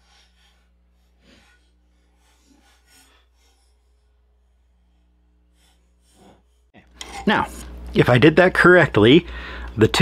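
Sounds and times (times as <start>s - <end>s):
caliper scraping steel: 0.0s - 7.6s.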